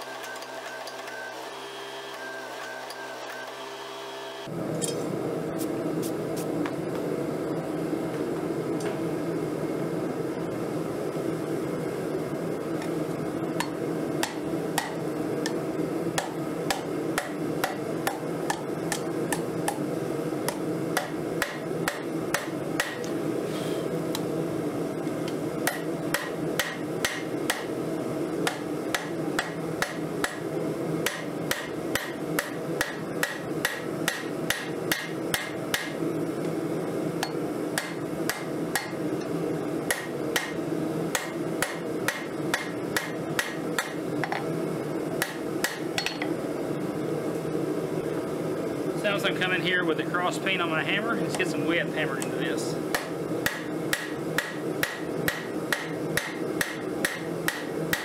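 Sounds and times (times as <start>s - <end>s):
hammer striking steel on anvil: 13.6s - 15.0s, 21.0s - 23.0s, 25.7s - 27.7s, 28.5s - 30.4s, 31.0s - 36.0s, 37.2s - 39.0s, 39.9s - 44.0s, 45.2s - 46.3s, 52.9s - 58.0s.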